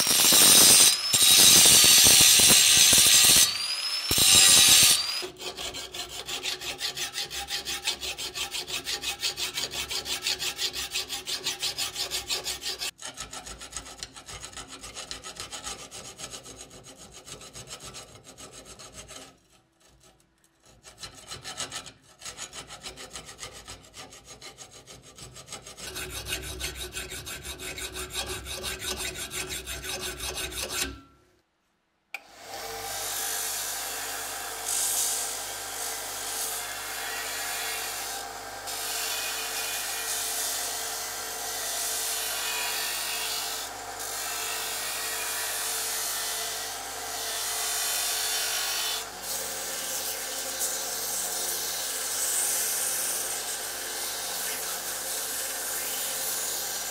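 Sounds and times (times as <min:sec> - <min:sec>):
grinding wheel on metal: 0:00.0 - 0:08.1
file rasping on steel: 0:00.0 - 0:31.2, 0:33.5 - 0:56.9.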